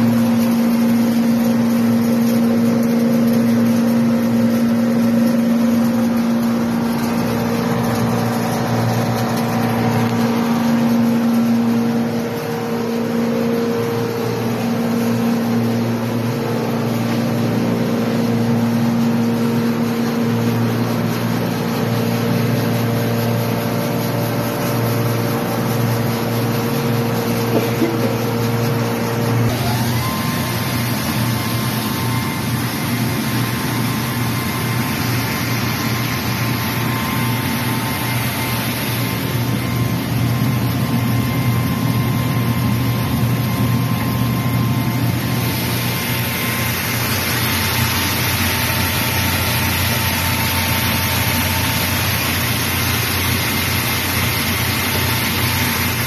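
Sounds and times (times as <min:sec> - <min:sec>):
rice milling machine whining: 0:00.0 - 0:56.0
rush of grain: 0:42.7 - 0:56.0.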